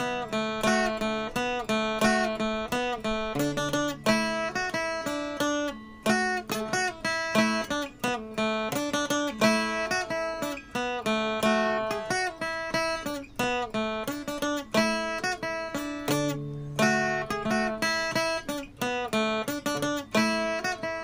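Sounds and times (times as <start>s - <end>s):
acoustic guitar playing: 0.0s - 21.0s.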